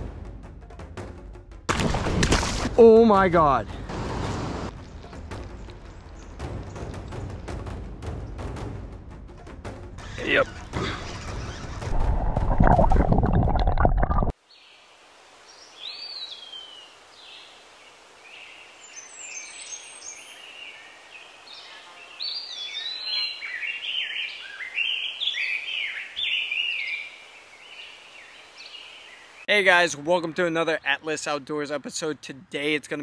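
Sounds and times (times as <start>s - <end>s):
songbirds singing: 4.7s - 8.6s, 14.4s - 29.6s
faint outdoor hiss: 14.4s - 33.0s.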